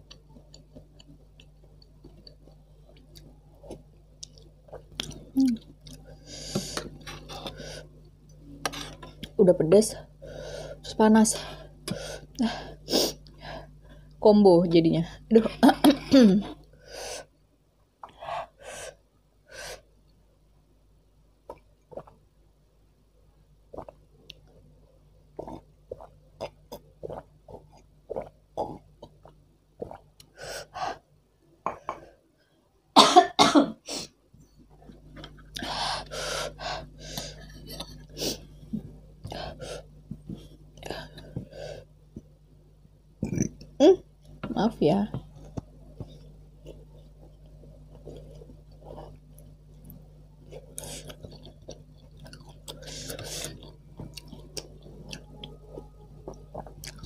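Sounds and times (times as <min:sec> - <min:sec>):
eating noises: 0:25.4 - 0:30.4, 0:45.4 - 0:57.0
woman coughing: 0:33.0 - 0:33.9.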